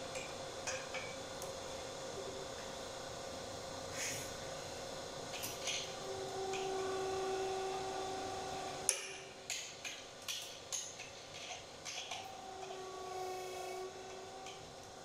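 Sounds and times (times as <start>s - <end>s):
hydraulic press humming: 3.9s - 9.8s, 11.8s - 15.0s.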